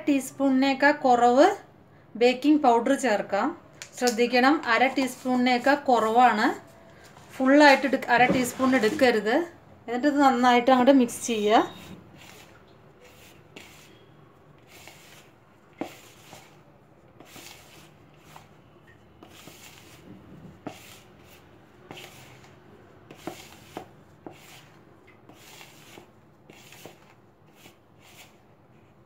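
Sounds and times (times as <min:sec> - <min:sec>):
fingers rustling dry mixture: 0:11.7 - 0:14.0, 0:14.6 - 0:18.6, 0:19.2 - 0:28.4.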